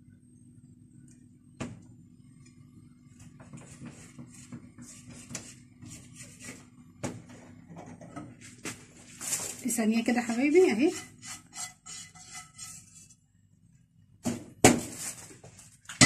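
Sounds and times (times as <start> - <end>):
steady low hum: 0.0 - 15.8
spatula scraping frying pan: 10.2 - 13.2.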